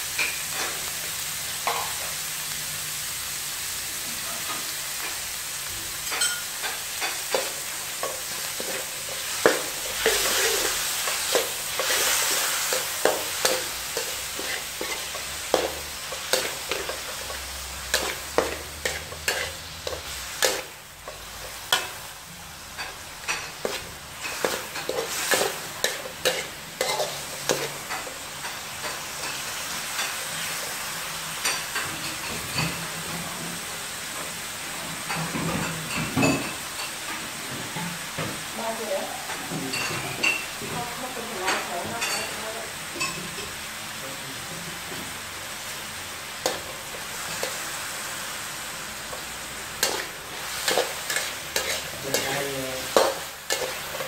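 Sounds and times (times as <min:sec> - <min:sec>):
meat sizzling in hot oil: 0:00.0 - 0:54.0
metal ladle scraping wok: 0:07.0 - 0:20.7, 0:49.7 - 0:54.0.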